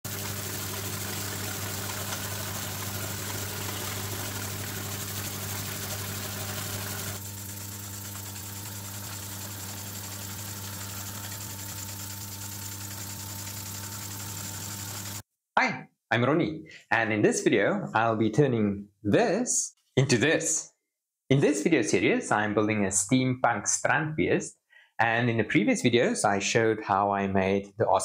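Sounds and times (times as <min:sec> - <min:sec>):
fast mechanical clatter: 0:00.0 - 0:15.2
small engine hum: 0:00.0 - 0:15.2.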